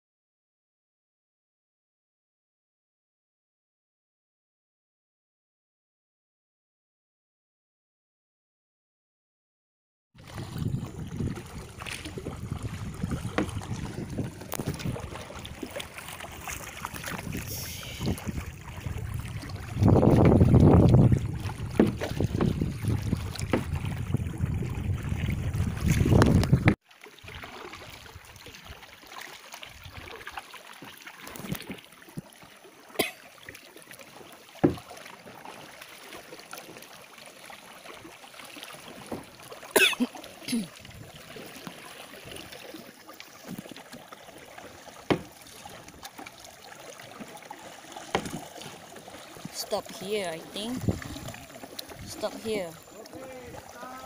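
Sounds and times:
wind rumbling on microphone: 0:10.2 - 0:26.8, 0:40.8 - 0:41.4, 0:50.5 - 0:53.7
gentle water noise: 0:10.2 - 0:54.0
paddle splashes and knocks: 0:10.2 - 0:54.0.

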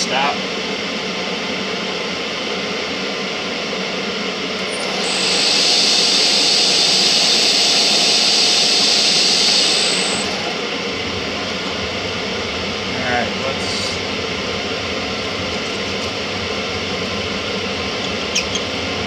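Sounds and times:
metal lathe running: 0:04.6 - 0:19.0.

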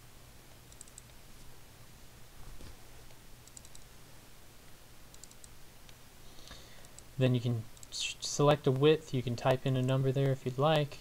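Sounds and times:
steady low hum: 0:00.0 - 0:11.0
computer mouse clicks: 0:00.7 - 0:01.2, 0:03.1 - 0:03.9, 0:05.1 - 0:07.1, 0:07.7 - 0:08.0.

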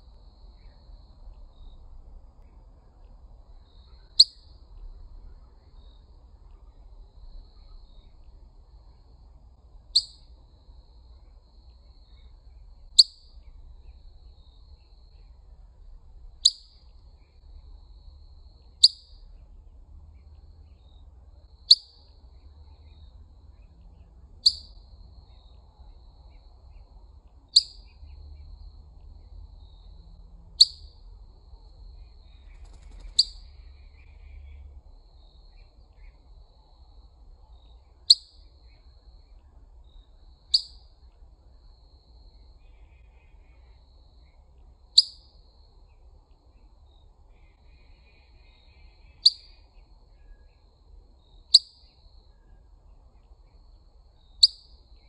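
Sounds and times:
low background rumble: 0:00.0 - 0:55.0
bird chip calls: 0:03.7 - 0:04.6, 0:09.9 - 0:10.3, 0:12.9 - 0:14.0, 0:16.4 - 0:17.4, 0:18.8 - 0:19.4, 0:21.7 - 0:23.8, 0:24.4 - 0:25.4, 0:27.5 - 0:28.2, 0:30.6 - 0:31.0, 0:32.0 - 0:34.7, 0:37.7 - 0:38.8, 0:40.5 - 0:40.9, 0:45.0 - 0:45.3, 0:47.4 - 0:50.4, 0:51.5 - 0:52.0, 0:54.2 - 0:54.8.

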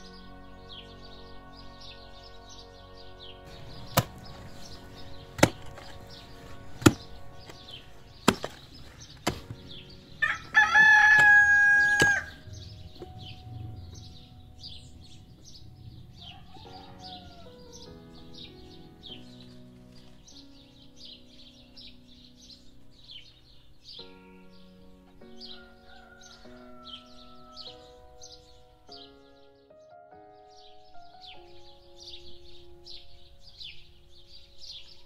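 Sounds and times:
faint background music: 0:00.0 - 0:35.0
small birds chirping: 0:00.0 - 0:35.0
digging tool striking stony soil: 0:03.6 - 0:04.5, 0:05.2 - 0:09.8, 0:11.1 - 0:12.3
rooster crowing: 0:10.2 - 0:12.4, 0:16.1 - 0:17.8, 0:25.5 - 0:27.8.

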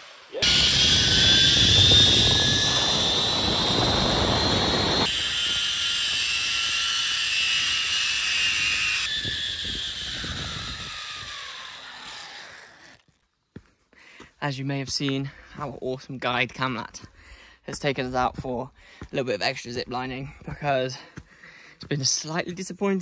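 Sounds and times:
zip-line pulleys whirring: 0:00.0 - 0:13.2
wind rushing over microphone: 0:00.4 - 0:05.1, 0:09.2 - 0:11.1.

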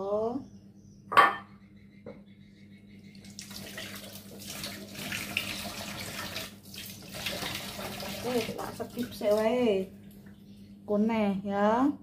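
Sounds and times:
tap water running into sink: 0:03.2 - 0:09.6.

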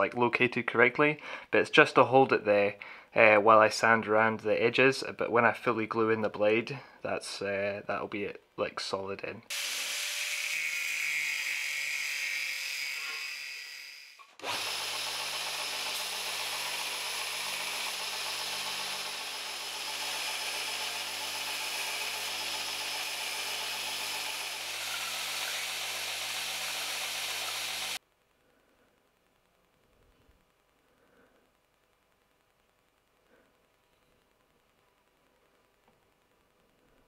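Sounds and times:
angle grinder whine: 0:09.5 - 0:28.0
belt grinder humming: 0:09.5 - 0:28.0.

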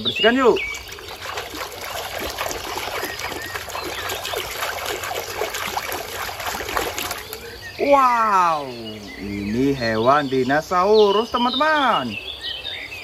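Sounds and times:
water splashing in a plastic tub: 0:00.0 - 0:07.6.

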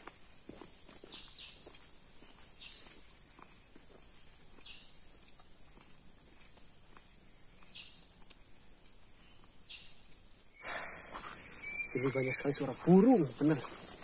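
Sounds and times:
high insect drone: 0:00.0 - 0:14.0
bird falling call: 0:10.6 - 0:14.0.

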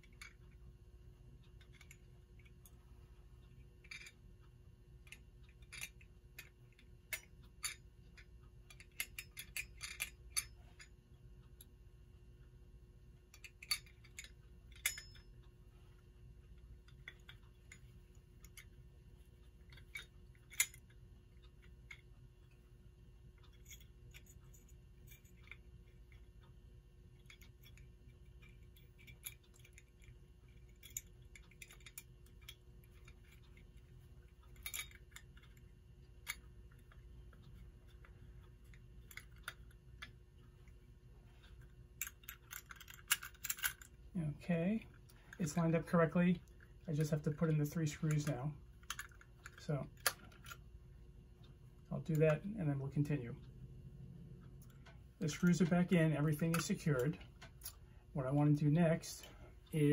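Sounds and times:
small metal parts clicking: 0:03.4 - 0:10.9, 0:13.3 - 0:15.4, 0:16.5 - 0:22.6, 0:23.4 - 0:44.0, 0:46.4 - 0:50.6.

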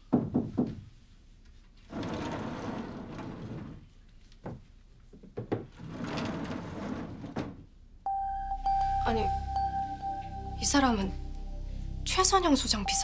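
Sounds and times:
wooden sliding door running: 0:01.8 - 0:04.6, 0:05.4 - 0:07.7
soft knocks: 0:04.4 - 0:07.7.

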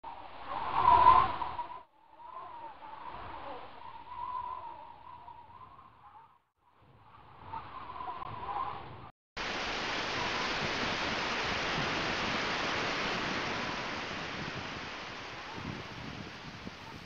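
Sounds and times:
steady rushing static hiss: 0:09.4 - 0:17.0.

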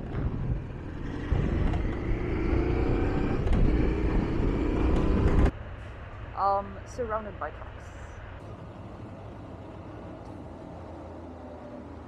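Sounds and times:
motorcycle engine: 0:00.0 - 0:05.5.

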